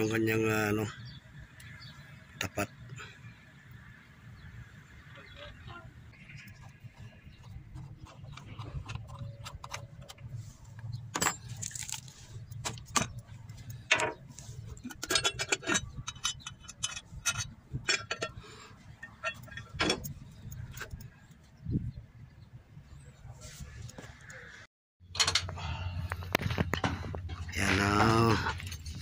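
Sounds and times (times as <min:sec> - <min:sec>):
metallic clinks and rattles: 0:11.1 - 0:21.2.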